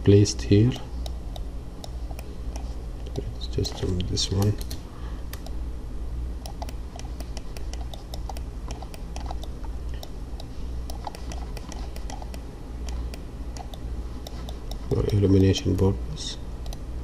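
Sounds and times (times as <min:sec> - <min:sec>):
steady low hum: 0:00.0 - 0:17.0
keyboard and mouse clicking: 0:06.4 - 0:15.9, 0:16.6 - 0:16.8.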